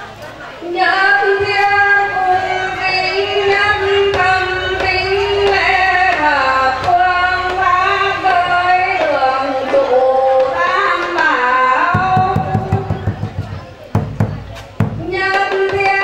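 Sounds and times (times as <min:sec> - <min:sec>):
woman singing a chant: 0:00.4 - 0:13.4, 0:14.9 - 0:16.0
drum struck: 0:03.8 - 0:09.2, 0:11.9 - 0:15.8.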